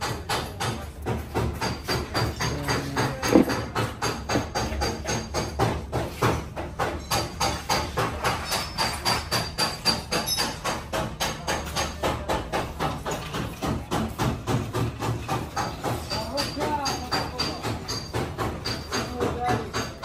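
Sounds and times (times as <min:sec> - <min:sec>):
hammer blows on sheet metal: 0:00.0 - 0:20.0.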